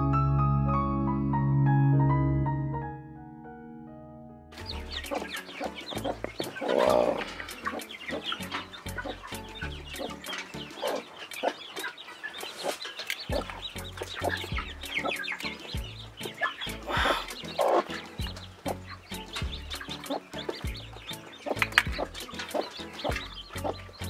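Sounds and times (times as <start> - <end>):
chicks peeping: 4.6 - 24.0
hen clucking low: 4.7 - 12.0, 12.6 - 23.8.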